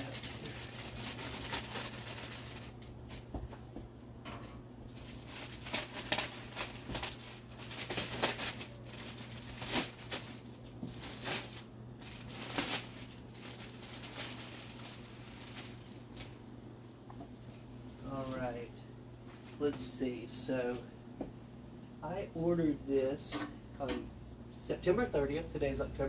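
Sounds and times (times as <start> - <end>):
plastic wrapping crinkling: 0.0 - 3.3, 4.9 - 16.5.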